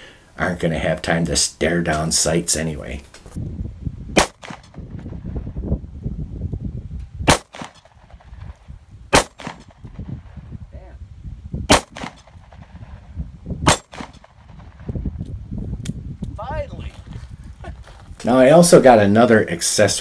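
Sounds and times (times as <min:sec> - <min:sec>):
low rumble: 0:03.4 - 0:18.2
revolver shots with echo: 0:04.2 - 0:04.8, 0:07.3 - 0:08.0, 0:09.1 - 0:09.8, 0:11.7 - 0:12.6, 0:13.7 - 0:14.5.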